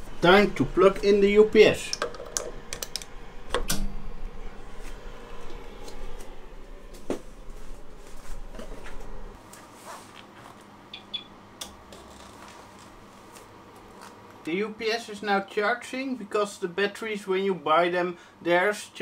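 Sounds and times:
low hum: 0:00.0 - 0:09.4.

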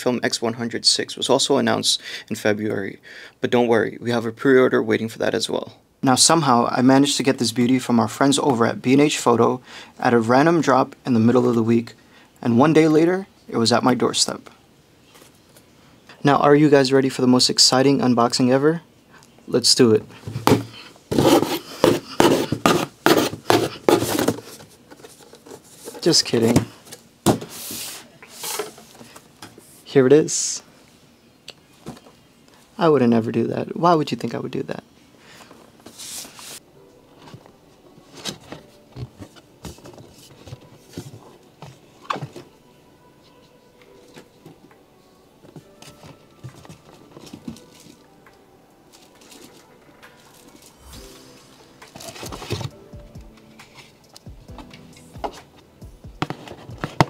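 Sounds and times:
cardboard packaging taps and rustles: 0:56.2 - 0:57.0.

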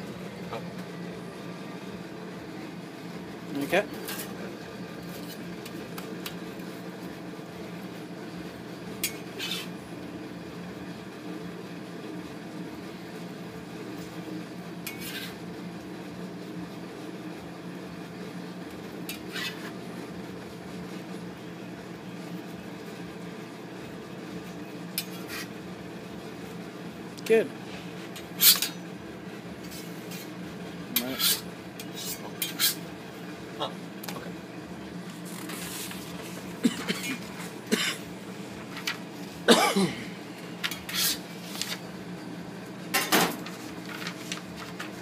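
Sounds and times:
kitchen hum: 0:00.0 - 0:45.0
metal spatula scraping a griddle: 0:09.0 - 0:09.7, 0:14.8 - 0:15.4, 0:19.1 - 0:19.7, 0:25.0 - 0:25.5, 0:28.4 - 0:28.7, 0:31.0 - 0:32.8, 0:40.7 - 0:41.8.

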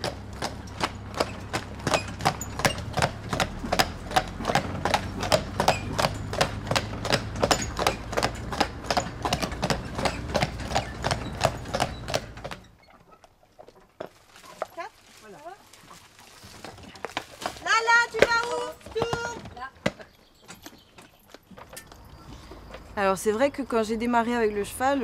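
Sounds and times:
horse hooves clip-clopping on pavement: 0:00.0 - 0:25.0
wagon rumble: 0:00.0 - 0:25.0.

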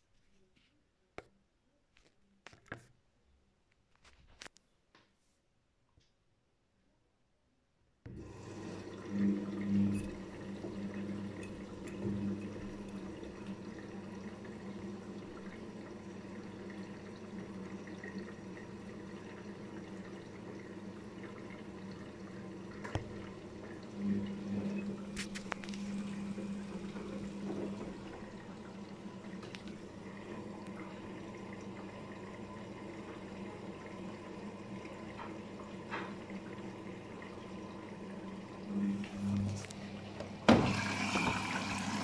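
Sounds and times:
washing machine drum turning: 0:08.1 - 0:14.6, 0:22.6 - 0:32.0, 0:40.1 - 0:42.0
motor hum: 0:08.1 - 0:42.0.

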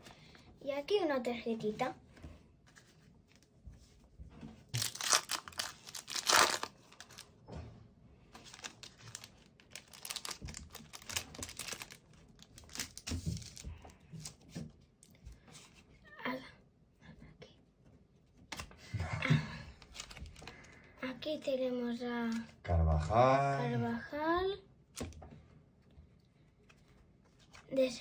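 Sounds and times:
foil wrapper ripping: 0:04.8 - 0:07.3, 0:08.4 - 0:13.6
foil crinkling: 0:04.8 - 0:07.4, 0:08.3 - 0:14.4, 0:19.8 - 0:20.7.

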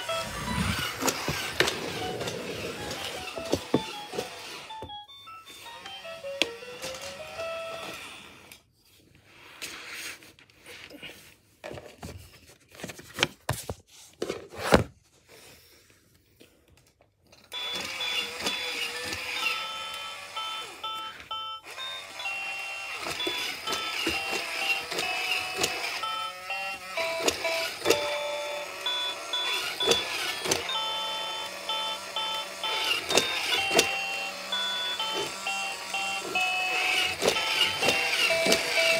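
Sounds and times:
electronic beeping tune: 0:00.0 - 0:06.8, 0:20.4 - 0:38.9
toy clicks and knocks: 0:17.5 - 0:38.9.

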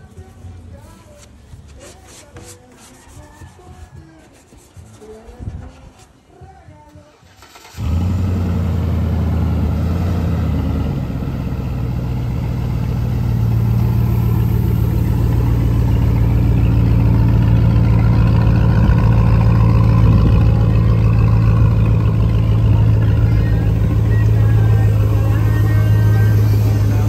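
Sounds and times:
engine idling: 0:07.3 - 0:27.0.

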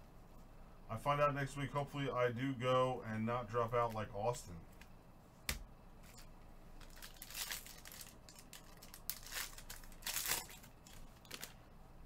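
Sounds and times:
plastic wrapping crinkling and tearing: 0:06.8 - 0:11.6.

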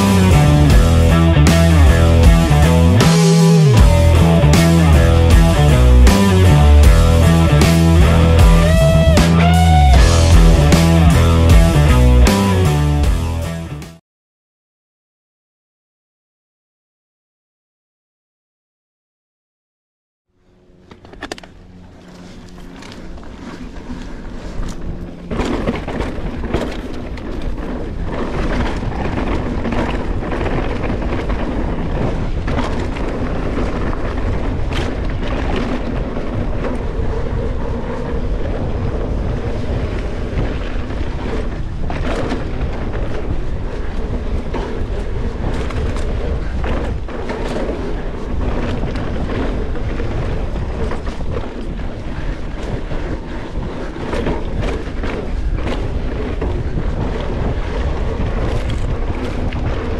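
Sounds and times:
bike rattling: 0:00.0 - 0:13.9, 0:20.4 - 0:59.9
tyres running on dirt: 0:20.8 - 0:59.9
wind rush on microphone: 0:21.2 - 0:59.9.

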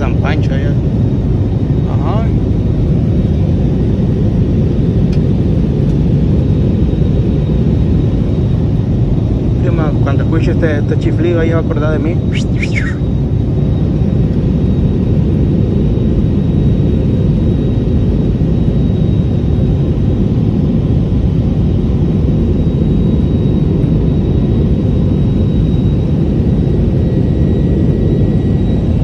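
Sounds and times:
jet engine rumble: 0:00.0 - 0:29.0
faint high whine: 0:06.1 - 0:29.0.

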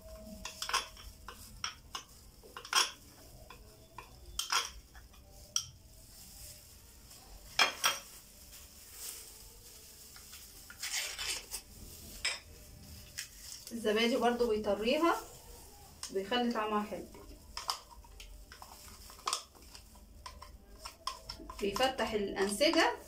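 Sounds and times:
metal spoon clinking glass bowl: 0:00.0 - 0:05.8.

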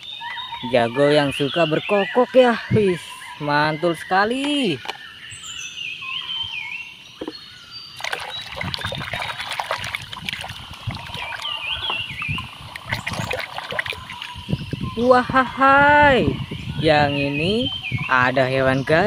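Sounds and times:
splashing in soapy water: 0:08.0 - 0:14.4.

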